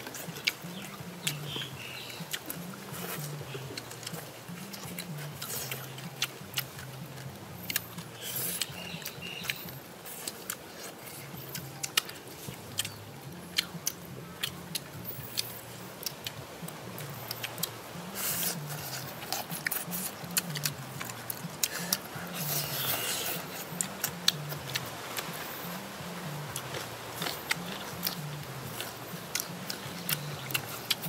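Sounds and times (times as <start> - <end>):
chewing and lip smacking: 0.0 - 31.0
quiet background music: 0.0 - 31.0.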